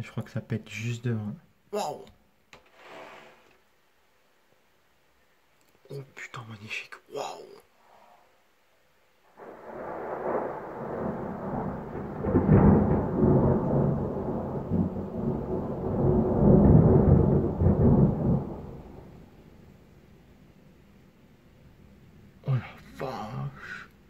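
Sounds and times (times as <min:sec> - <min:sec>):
rolling thunder: 0:09.4 - 0:19.6.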